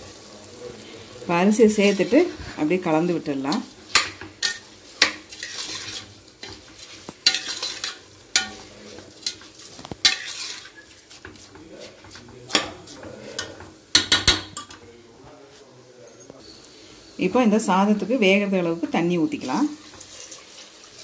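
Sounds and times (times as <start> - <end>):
soft sizzle: 0.0 - 21.0
spatula scraping pot: 1.7 - 14.6.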